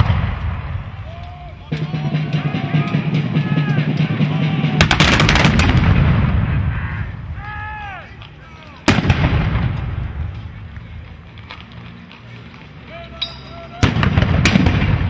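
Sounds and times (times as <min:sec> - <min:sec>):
muskets firing: 0:00.0 - 0:06.7, 0:08.8 - 0:10.3, 0:13.8 - 0:15.0.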